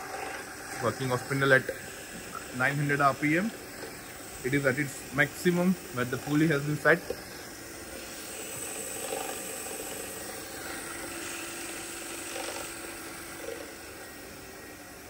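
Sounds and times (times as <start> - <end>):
milling machine spindle running: 0.0 - 15.0.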